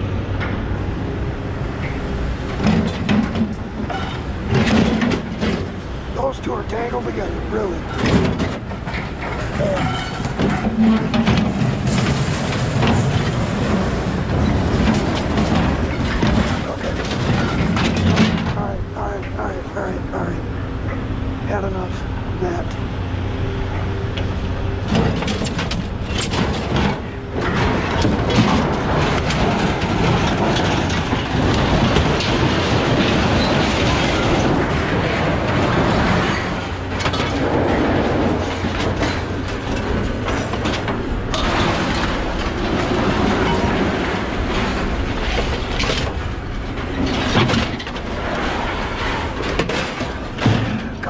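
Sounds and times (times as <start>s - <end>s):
scrap metal clattering and scraping: 1.8s - 19.6s, 23.6s - 51.0s.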